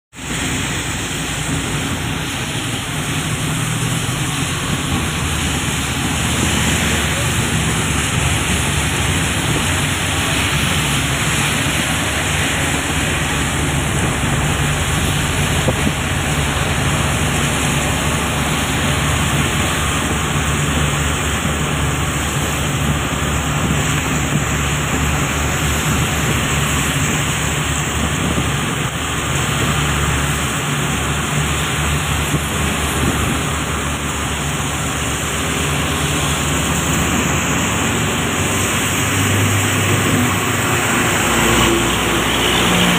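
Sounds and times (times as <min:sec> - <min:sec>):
road noise: 0:00.1 - 0:42.9
tyres hissing on wet road: 0:00.1 - 0:42.9
vehicle engine drone: 0:00.1 - 0:42.9.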